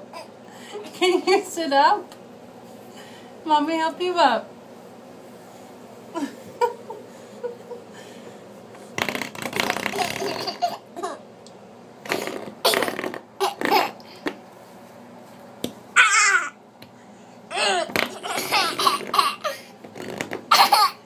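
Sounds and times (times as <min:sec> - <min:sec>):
baby laughing and giggling: 0:09.9 - 0:11.2, 0:17.5 - 0:19.6, 0:20.5 - 0:21.0
baby squealing: 0:16.0 - 0:16.6.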